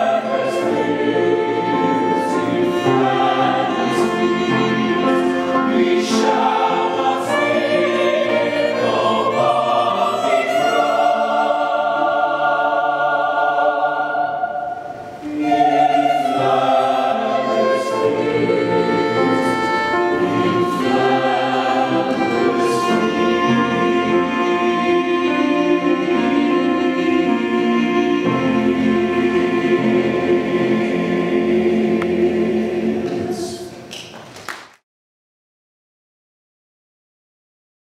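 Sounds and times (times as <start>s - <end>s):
mixed choir singing in harmony: 0.0s - 33.9s.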